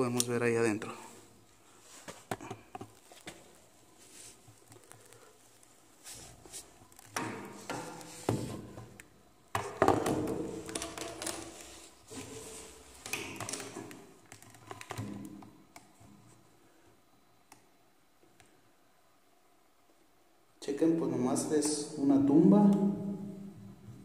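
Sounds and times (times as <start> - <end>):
rustling: 1.5 - 8.8.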